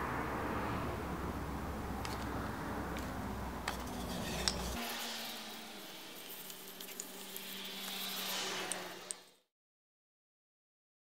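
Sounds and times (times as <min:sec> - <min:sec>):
hands rubbing oil into wood: 0:03.0 - 0:04.9, 0:06.2 - 0:09.2.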